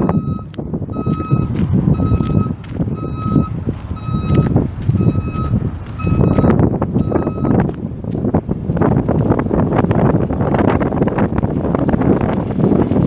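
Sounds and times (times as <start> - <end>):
vehicle backup alarm beeping: 0.0 - 7.8
loud low rumble: 0.0 - 13.0.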